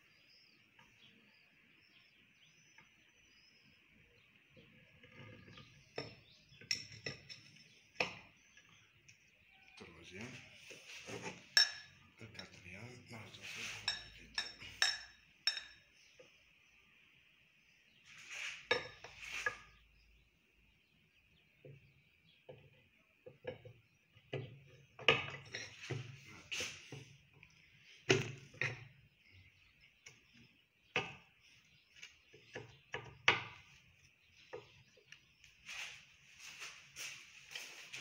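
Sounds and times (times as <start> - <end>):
metal tools knocking and clinking: 6.0 - 8.2, 13.8 - 15.9.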